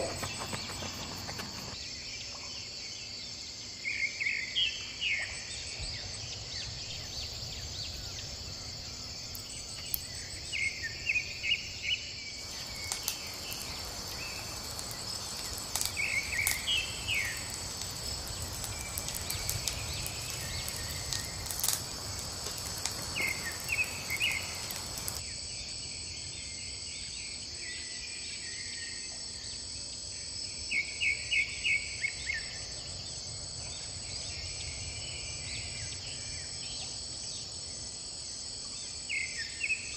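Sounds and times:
wood fire hissing and crackling: 0:00.0 - 0:01.8, 0:05.4 - 0:25.2
insects chorus: 0:00.0 - 0:39.9.

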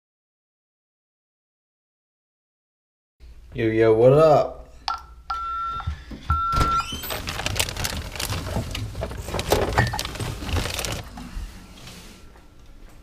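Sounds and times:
plastic bags rustling: 0:06.6 - 0:11.8.

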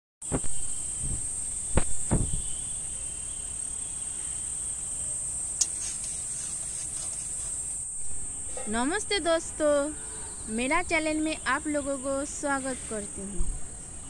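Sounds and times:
insects chirring: 0:00.2 - 0:14.0
dull knocks: 0:01.8 - 0:02.5.

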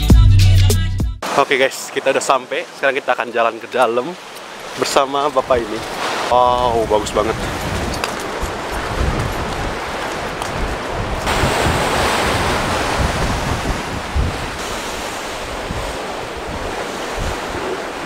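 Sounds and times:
surf breaking on rocks: 0:01.2 - 0:18.0
wind rumbling on microphone: 0:05.4 - 0:18.0.

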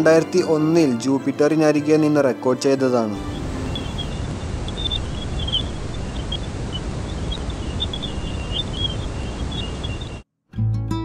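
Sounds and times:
high chirps and blips: 0:03.2 - 0:10.2
steady rushing hiss: 0:03.2 - 0:10.2.

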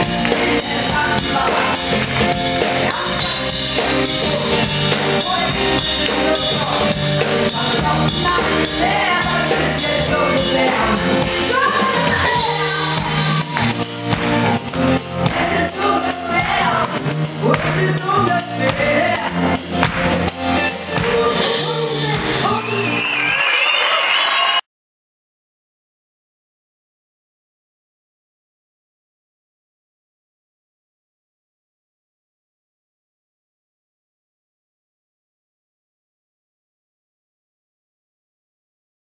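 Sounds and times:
woman singing: 0:00.0 - 0:13.9, 0:15.2 - 0:19.9, 0:20.6 - 0:23.2
acoustic and electric guitars: 0:00.0 - 0:23.2
drums: 0:00.0 - 0:24.6.

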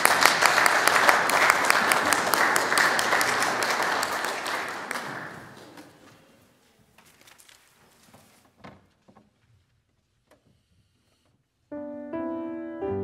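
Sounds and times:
crowd applauding: 0:00.0 - 0:06.1.

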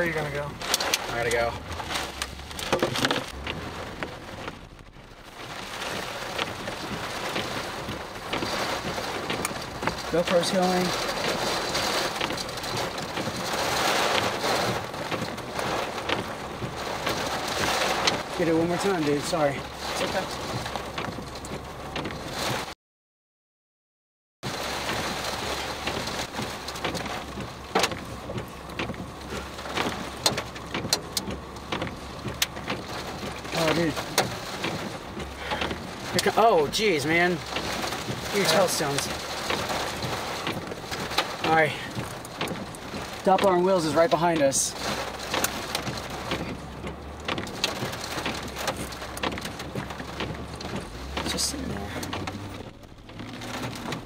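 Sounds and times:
rain on car windshield and roof: 0:00.0 - 0:22.8, 0:24.4 - 0:54.0
sharp raindrop impacts: 0:00.0 - 0:22.8, 0:24.4 - 0:54.0.

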